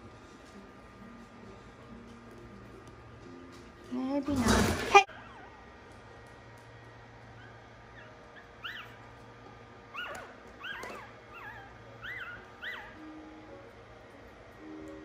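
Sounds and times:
puppies crying: 0:04.9 - 0:06.0, 0:07.2 - 0:13.4.

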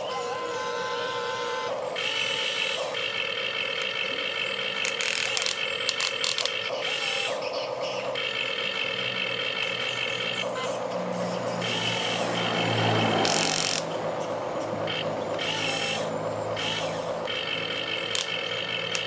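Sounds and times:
toy gear motors whining: 0:00.0 - 0:19.0
short clicks: 0:18.0 - 0:19.0.

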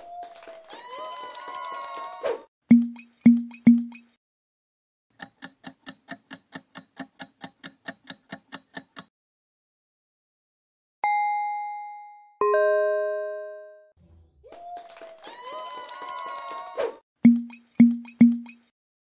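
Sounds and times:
countdown clock ticking: 0:02.7 - 0:04.0, 0:05.2 - 0:09.1, 0:17.2 - 0:18.6
bell-like ding: 0:11.0 - 0:13.8.

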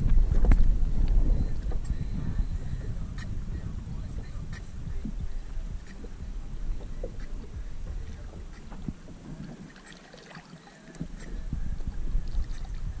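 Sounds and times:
water lapping against boat: 0:00.0 - 0:13.0
wind rumbling on microphone: 0:00.0 - 0:13.0.

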